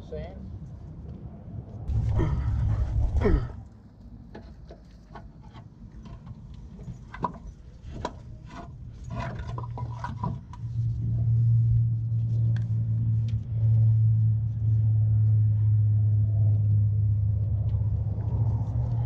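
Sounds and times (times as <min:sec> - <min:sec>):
loud low machine hum: 0:01.9 - 0:03.6, 0:10.4 - 0:19.0.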